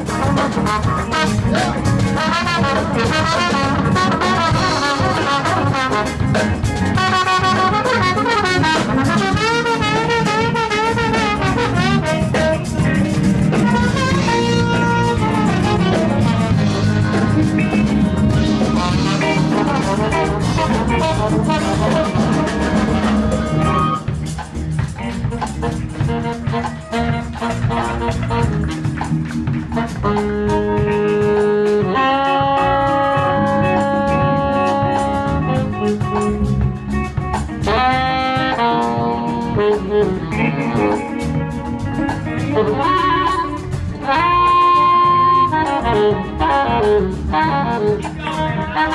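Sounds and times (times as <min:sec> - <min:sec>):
horns holding long notes: 0:00.0 - 0:24.2, 0:29.7 - 0:36.0
trombone solo: 0:00.0 - 0:24.2, 0:25.3 - 0:36.4, 0:37.5 - 0:48.9
live soul band playing: 0:00.0 - 0:48.9.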